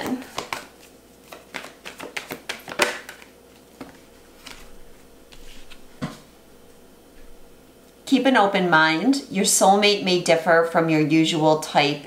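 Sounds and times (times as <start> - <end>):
card taps: 0.0 - 4.6
cards being shuffled: 0.0 - 6.2.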